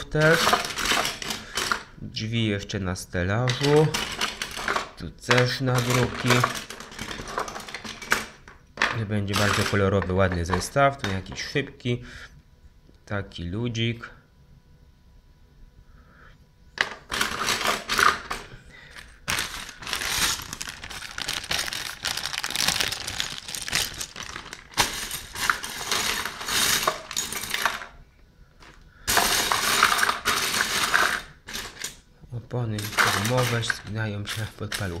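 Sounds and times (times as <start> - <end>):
plastic bricks clattering into box: 0.0 - 1.9, 3.5 - 10.7, 16.8 - 28.0, 28.6 - 32.0, 32.8 - 35.0.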